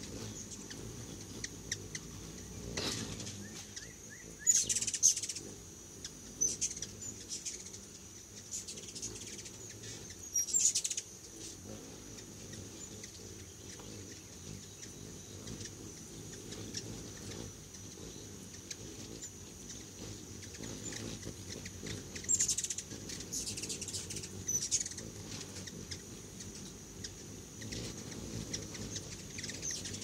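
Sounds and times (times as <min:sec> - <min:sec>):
hummingbirds chattering: 0:00.0 - 0:30.0.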